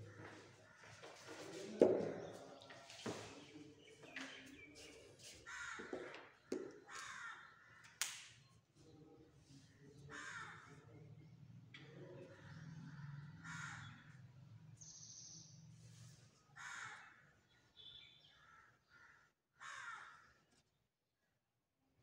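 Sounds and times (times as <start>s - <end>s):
faint crow cawing: 0.0s - 1.4s, 5.4s - 8.0s, 10.0s - 10.9s, 12.2s - 14.3s, 16.5s - 17.4s, 18.3s - 20.5s.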